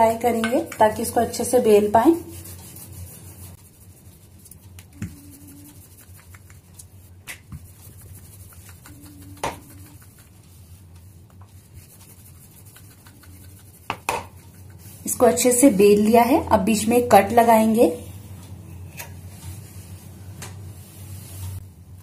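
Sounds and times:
rolling pin rubbing dough: 0.0s - 15.8s.

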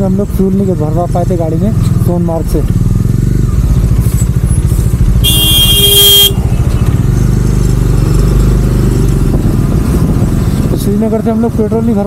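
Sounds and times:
motorcycle engine running: 0.0s - 12.0s
vehicle horn: 5.2s - 6.5s.

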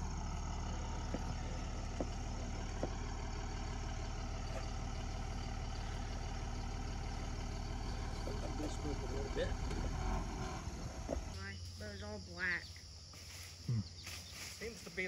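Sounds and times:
engine idling: 0.0s - 12.7s.

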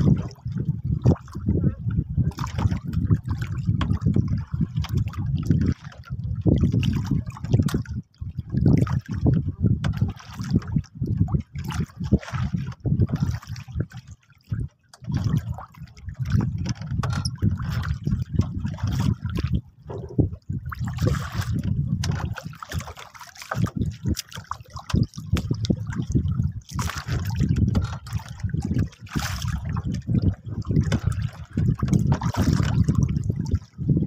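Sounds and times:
water lapping against boat hull: 0.0s - 34.0s
low rumble: 19.6s - 20.7s.

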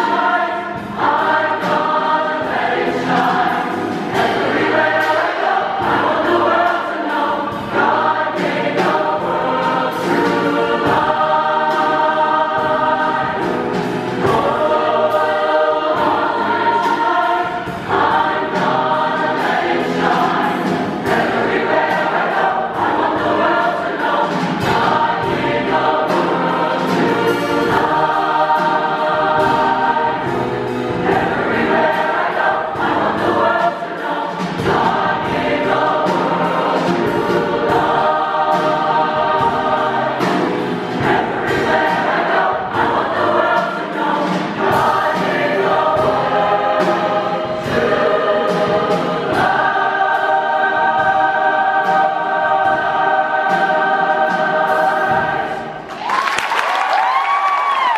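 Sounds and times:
mixed choir singing chords: 0.0s - 57.9s.

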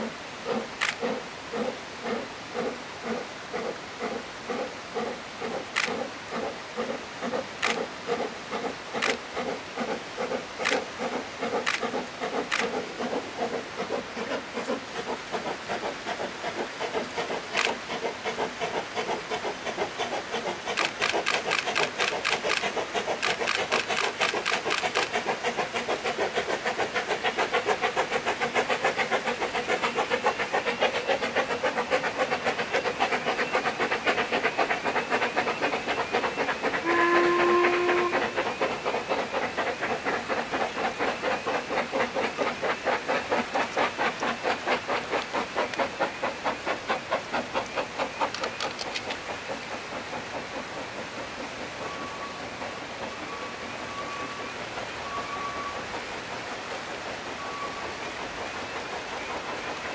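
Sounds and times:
steam hissing: 0.0s - 59.9s
steam locomotive chuffing: 0.0s - 59.9s
sharp metallic clicks: 9.0s - 9.2s, 20.7s - 25.1s, 48.2s - 49.2s.

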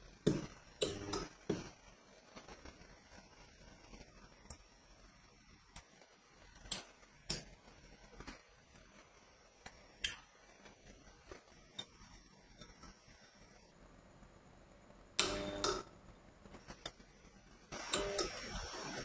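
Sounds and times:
clicks of bending metal strip: 15.2s - 15.8s.

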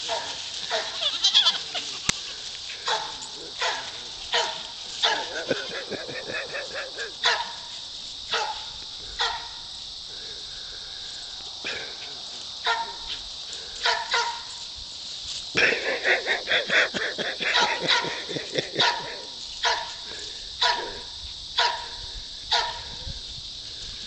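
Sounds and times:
dog barking: 2.9s - 5.8s, 6.4s - 7.7s, 8.3s - 9.6s, 12.6s - 13.0s, 13.8s - 14.5s, 17.4s - 20.0s, 20.6s - 23.0s.

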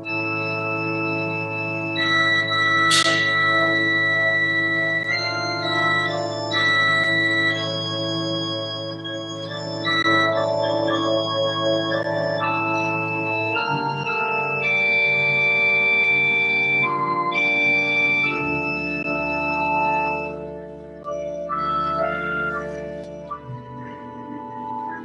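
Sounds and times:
organ playing slow chords: 0.0s - 25.0s
deep organ bass note: 2.9s - 6.6s.

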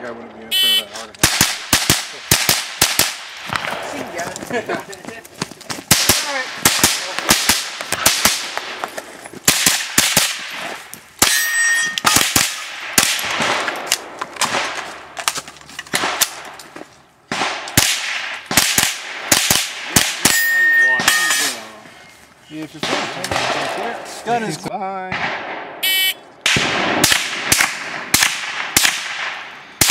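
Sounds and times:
rifle shots: 1.2s - 4.2s, 5.9s - 16.6s, 17.3s - 21.6s, 22.8s - 24.0s, 25.1s - 29.9s
steel targets clanging: 11.2s - 12.2s, 20.2s - 21.7s.

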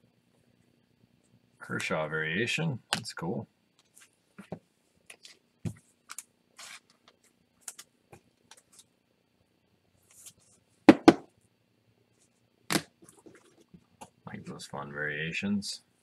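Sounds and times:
plastic card sleeves rustling: 6.1s - 7.0s.

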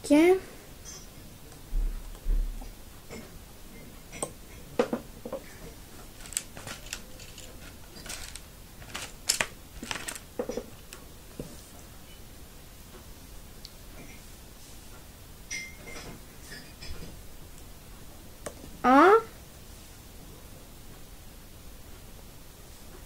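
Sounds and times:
rubber bands clicking on forks: 6.2s - 11.0s.

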